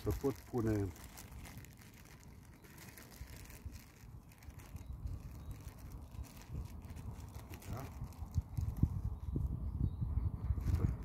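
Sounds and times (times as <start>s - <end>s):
plastic packets rustling: 0.0s - 9.1s
wind rumble on microphone: 0.0s - 11.0s.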